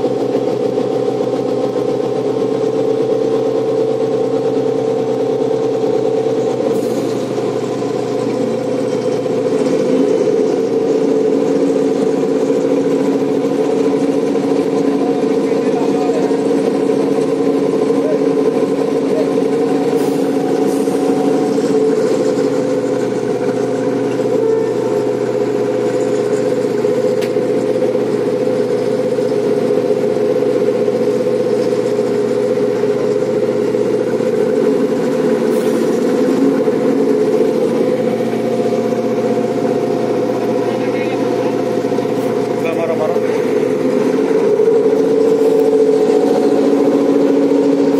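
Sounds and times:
diesel engines droning: 0:00.0 - 0:47.9.

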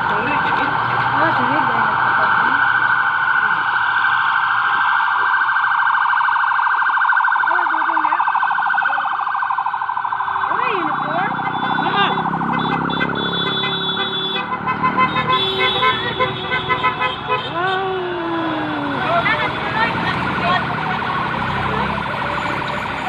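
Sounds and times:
electronic siren warbling: 0:00.1 - 0:13.4.

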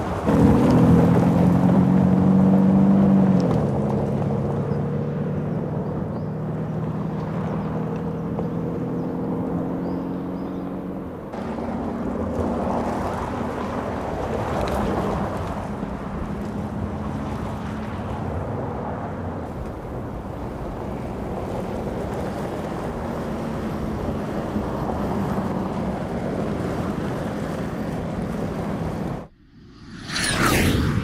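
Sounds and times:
diesel engine droning: 0:00.0 - 0:31.0
whoosh effect with gliding pitch: 0:29.3 - 0:31.0.

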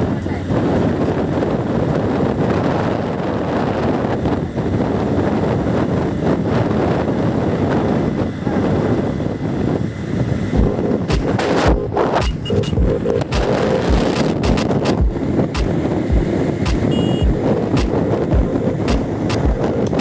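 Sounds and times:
road rumble: 0:00.0 - 0:20.0
wind buffeting microphone: 0:00.0 - 0:20.0
short low thumps: 0:10.6 - 0:20.0.

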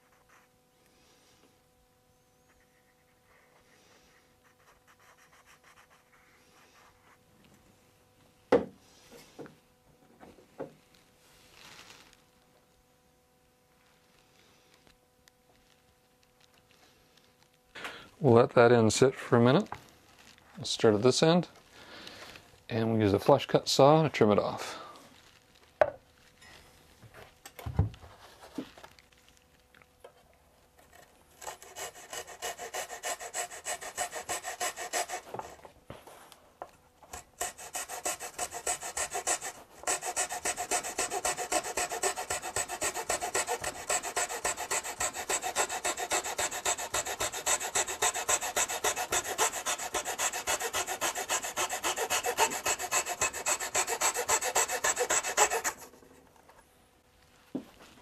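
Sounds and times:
hand saw cutting wood: 0:30.9 - 0:35.6, 0:37.1 - 0:56.0.

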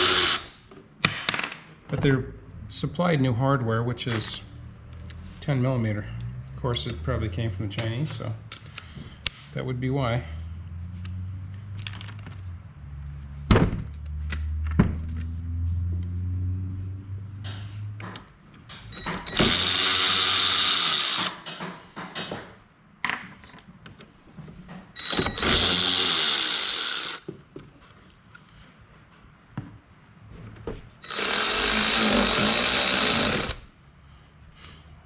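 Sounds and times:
power tool running: 0:00.0 - 0:00.6, 0:19.1 - 0:21.4, 0:25.1 - 0:27.2, 0:31.0 - 0:33.6.

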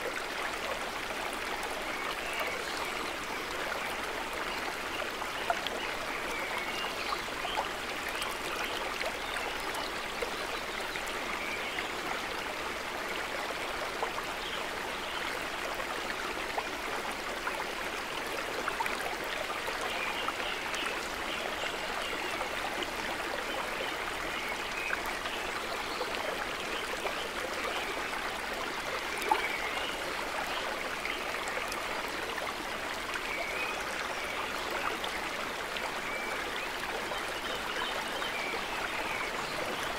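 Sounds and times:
stream babbling over stones: 0:00.0 - 0:39.9.

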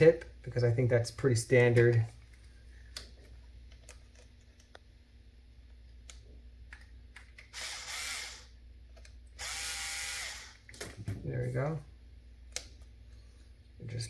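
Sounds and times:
cordless power screwdriver running: 0:07.5 - 0:08.5, 0:09.4 - 0:10.6.

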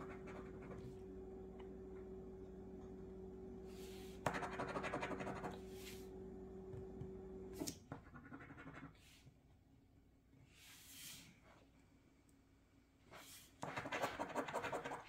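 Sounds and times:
low hum: 0:00.0 - 0:07.6.

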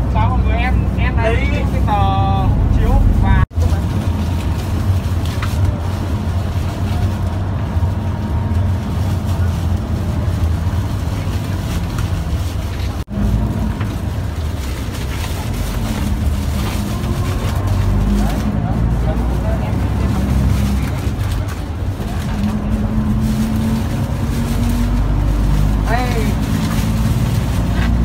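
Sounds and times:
bus engine rumbling: 0:00.0 - 0:28.0
murmur of voices: 0:14.1 - 0:24.0.

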